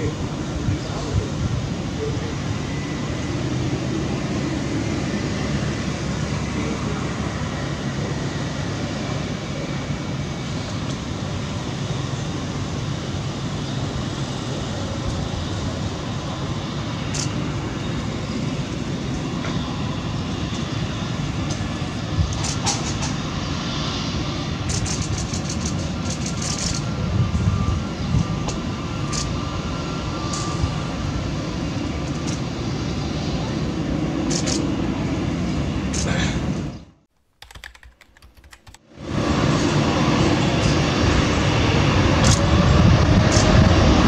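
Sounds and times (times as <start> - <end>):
jet engines rumbling: 0.0 - 37.1, 38.9 - 44.0.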